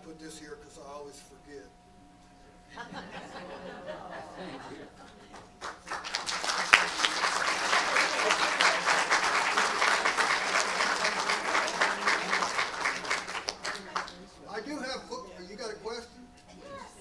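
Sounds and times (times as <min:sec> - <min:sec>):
audience applauding: 0:03.8 - 0:14.3.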